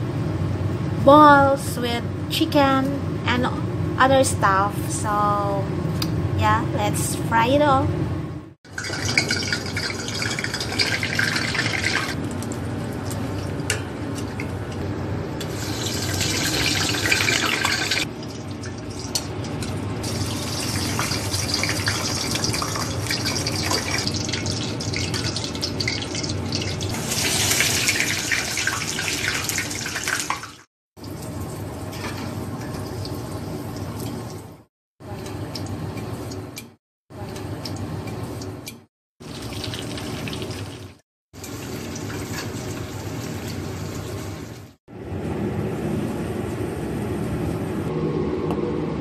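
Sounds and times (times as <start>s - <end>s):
deep-frying oil sizzling and popping: 8.7s - 14.4s, 15.4s - 34.6s, 35.2s - 44.8s.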